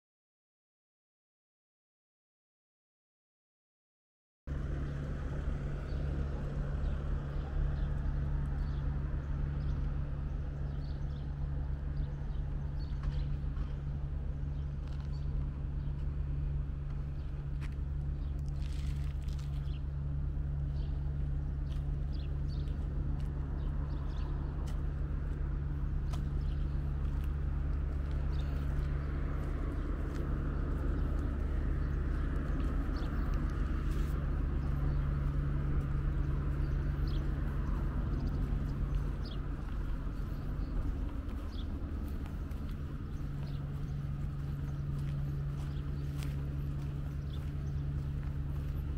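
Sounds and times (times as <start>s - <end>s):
steady low rumble: 4.5s - 48.9s
footsteps on stone paving: 12.9s - 16.2s, 16.9s - 20.3s, 21.1s - 48.9s.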